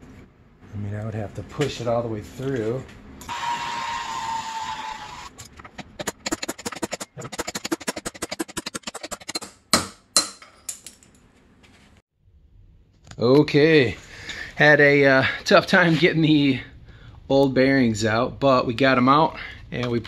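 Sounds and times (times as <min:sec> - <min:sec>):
rapid clicking and rattling: 0:05.4 - 0:09.5.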